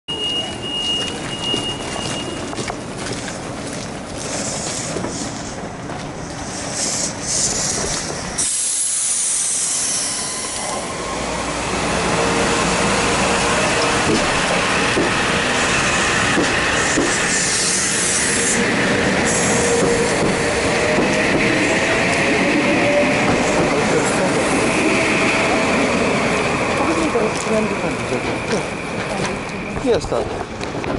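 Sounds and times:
train wheel noise: 0:00.1 - 0:30.9
air hiss: 0:06.4 - 0:10.7.

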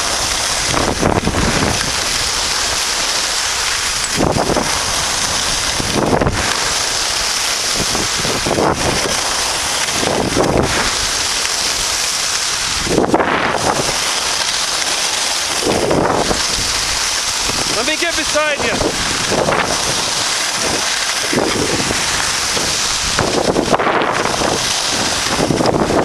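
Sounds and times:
skis scraping packed snow: 0:00.0 - 0:26.0
wind rushing over microphone: 0:00.0 - 0:26.0.

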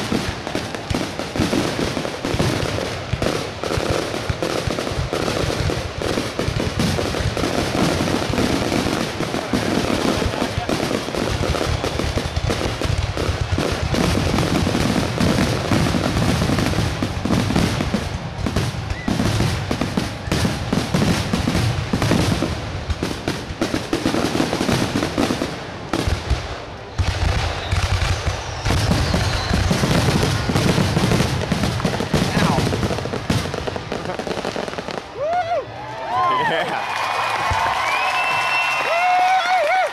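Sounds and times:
fireworks bursting: 0:00.0 - 0:39.9.

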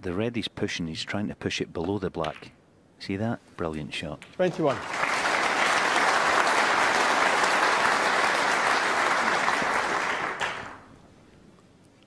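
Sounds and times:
audience clapping: 0:04.5 - 0:10.9.

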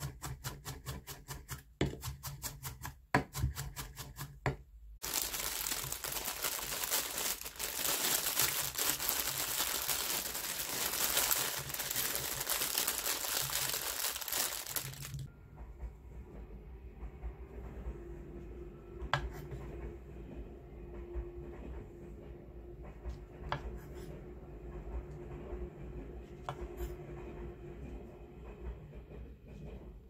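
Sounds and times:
knife chopping on wooden board: 0:00.0 - 0:04.6
plastic bag crinkling: 0:05.0 - 0:15.3.

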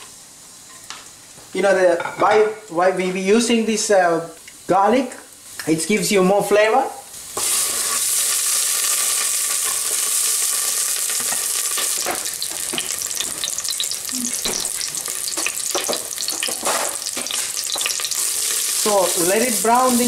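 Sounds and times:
crackles of frying: 0:00.0 - 0:20.0
garlic sizzling in hot oil: 0:07.0 - 0:20.0.

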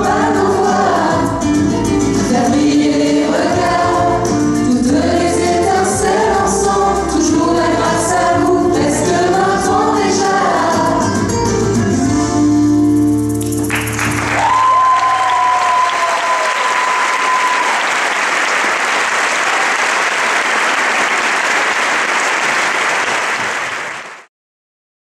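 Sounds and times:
audience applauding and cheering: 0:13.4 - 0:24.3.

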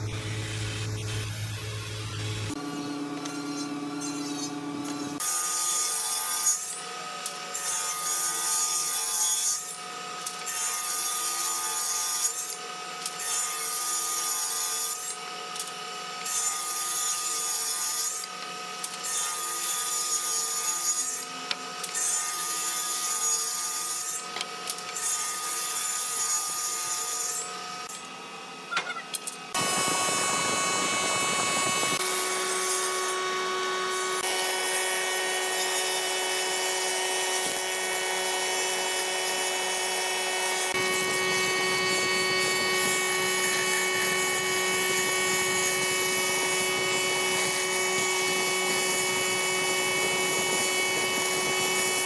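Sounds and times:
table saw cutting wood: 0:00.0 - 0:52.0
wood planing machine running: 0:29.5 - 0:52.0.

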